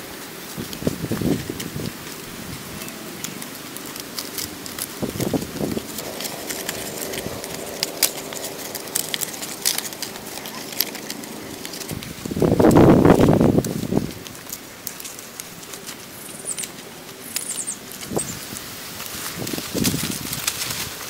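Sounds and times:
leaves rustling and crackling: 0:00.0 - 0:21.0
small ticks and snaps: 0:00.4 - 0:21.0.

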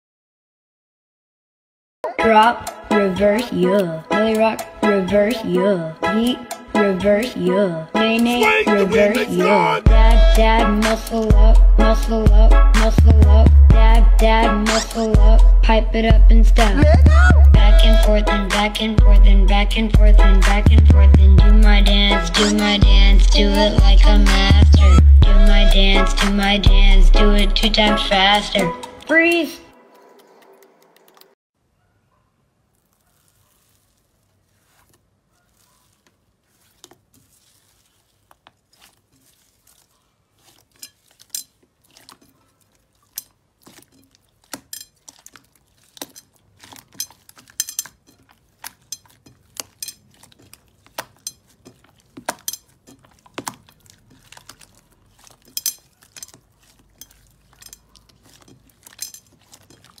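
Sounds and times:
hands squeezing slime: 0:32.7 - 1:00.0.

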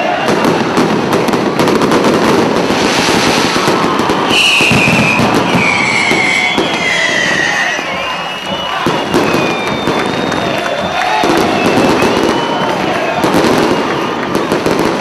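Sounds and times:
fireworks crackling bangs: 0:00.1 - 0:15.0
firework high whistle: 0:02.4 - 0:14.8.

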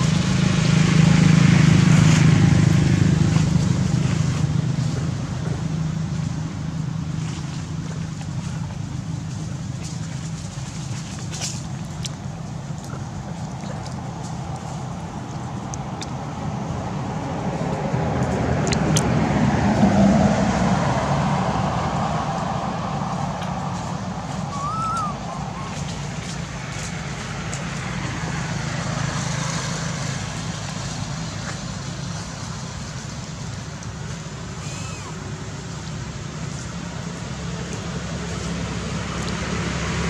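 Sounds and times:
traffic engine drone: 0:00.0 - 0:40.0
vehicle driving past: 0:16.3 - 0:33.4.

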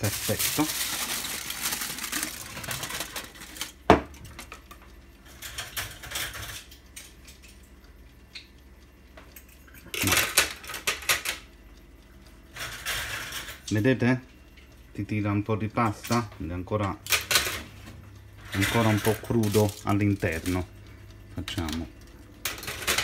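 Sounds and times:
aluminium foil crinkling: 0:00.0 - 0:04.5, 0:18.5 - 0:20.7.

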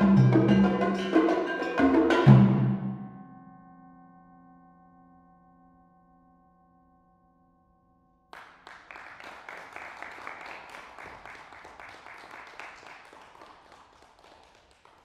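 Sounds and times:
audience applause: 0:08.4 - 0:15.0.

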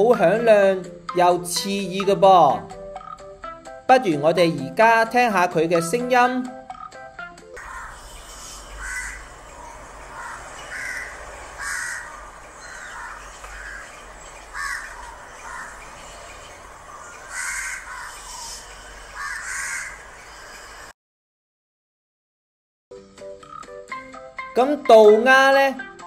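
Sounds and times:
raven cawing: 0:07.6 - 0:20.9.

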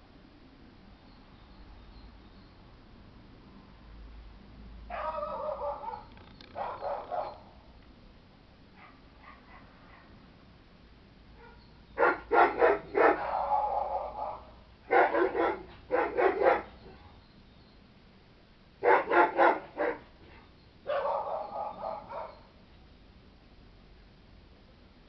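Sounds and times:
dog barking: 0:04.9 - 0:07.5, 0:08.8 - 0:10.2, 0:11.4 - 0:17.2, 0:18.8 - 0:22.5.

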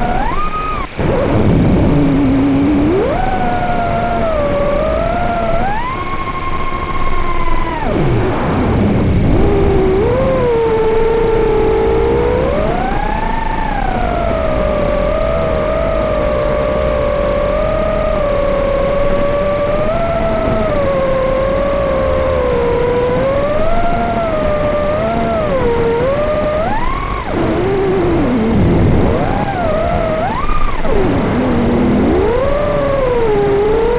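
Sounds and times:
drone motors whining: 0:00.0 - 0:33.9.

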